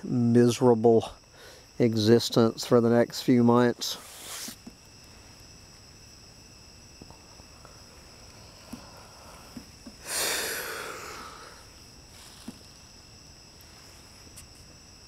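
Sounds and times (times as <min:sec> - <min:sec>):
night insects chirping: 0:00.0 - 0:15.0
loud breathy rush: 0:08.7 - 0:11.8.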